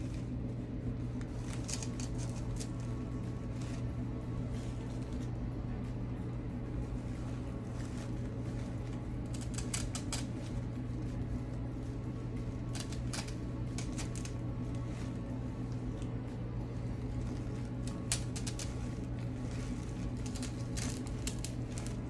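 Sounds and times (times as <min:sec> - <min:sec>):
low room hum: 0:00.0 - 0:22.0
artificial flowers clicking and rustling: 0:01.2 - 0:05.4, 0:06.8 - 0:22.0.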